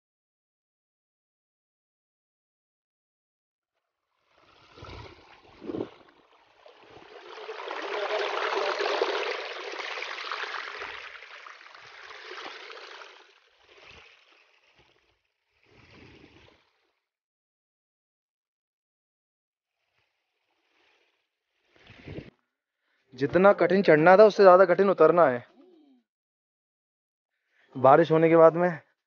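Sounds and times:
rushing water: 0:04.4 - 0:14.7.

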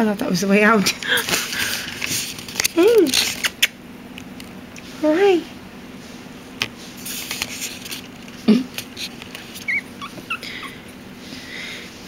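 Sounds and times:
puppy whimpering: 0:09.5 - 0:10.9.

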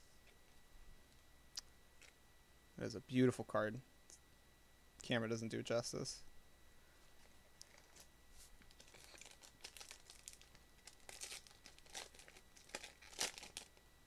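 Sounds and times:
foil wrapper crinkling: 0:07.6 - 0:13.8
foil wrapper tearing: 0:08.7 - 0:13.8.

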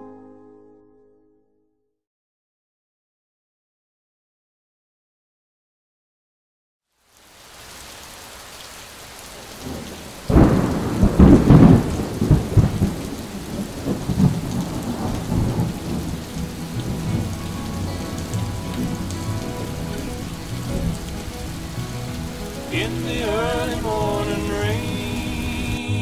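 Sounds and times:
steady rain: 0:06.9 - 0:26.0
thunderclap rumbling: 0:09.6 - 0:26.0.

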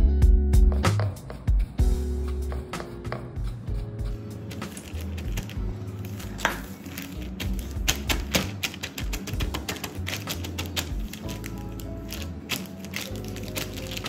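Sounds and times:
lo-fi background music: 0:00.0 - 0:14.0
plastic bag crinkling: 0:04.5 - 0:14.0.

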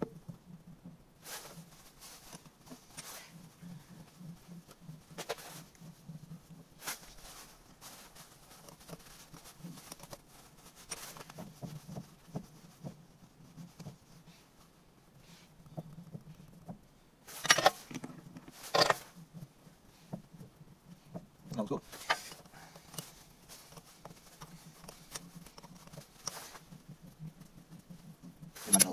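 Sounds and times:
metal clatter: 0:17.3 - 0:19.1
hand tools clicking and knocking: 0:17.4 - 0:19.1.

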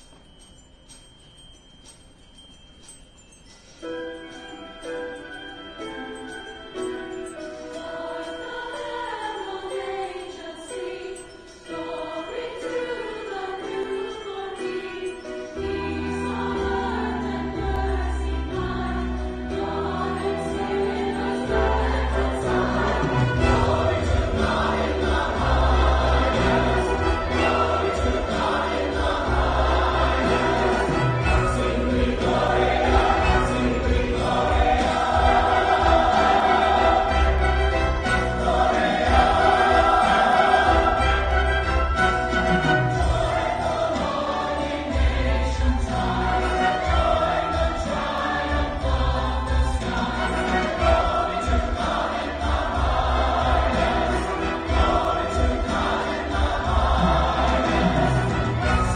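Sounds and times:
church choir singing: 0:06.1 - 0:58.9
orchestra playing: 0:19.6 - 0:48.7, 0:49.8 - 0:58.9.

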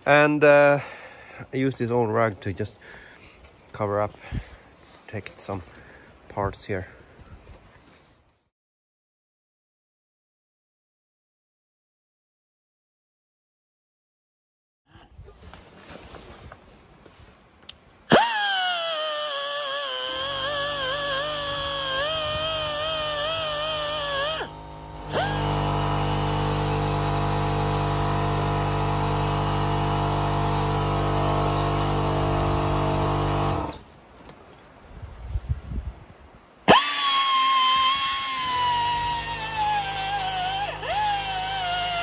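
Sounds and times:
grinder whining: 0:18.1 - 0:33.8, 0:36.7 - 0:42.0.

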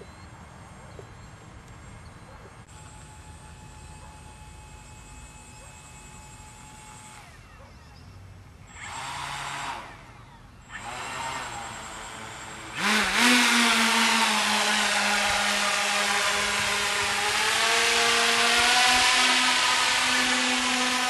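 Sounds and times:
model airship propellers whirring: 0:08.6 - 0:21.0.

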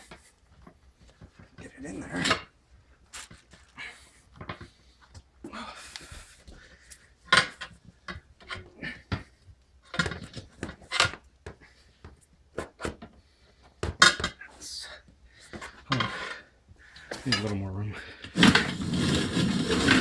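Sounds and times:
rubber rubbing scrapes: 0:18.4 - 0:20.0.

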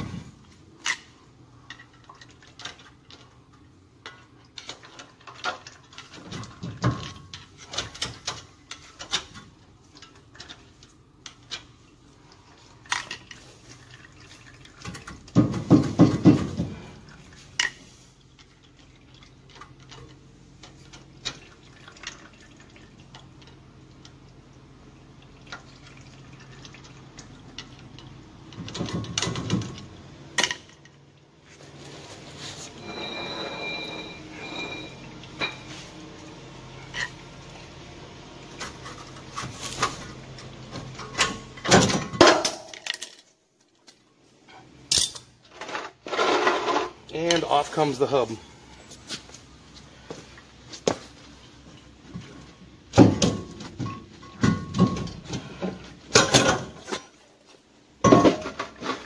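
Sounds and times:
wheel hub rattling and scraping: 0:25.6 - 0:36.0, 0:44.5 - 0:59.0.

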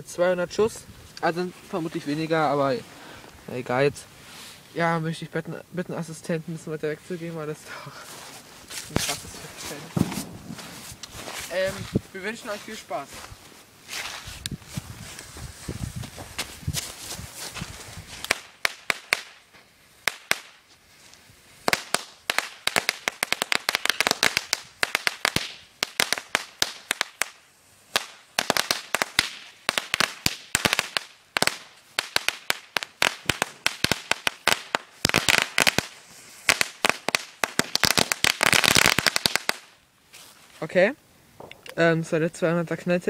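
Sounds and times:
firecrackers going off: 0:07.8 - 0:13.2, 0:16.9 - 0:20.8, 0:21.6 - 0:39.8.

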